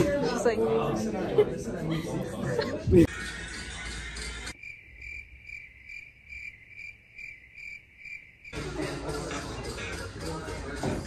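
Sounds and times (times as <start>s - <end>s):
cricket chirping: 4.5s - 8.6s.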